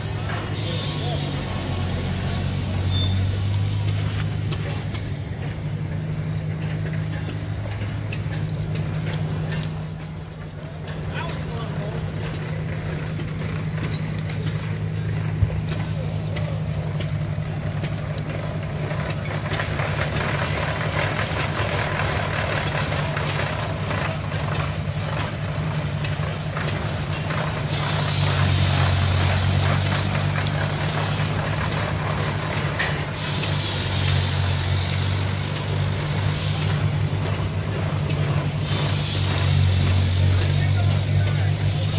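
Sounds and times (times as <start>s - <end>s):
low drone of engines: 0.0s - 41.9s
hiss: 20.0s - 41.9s.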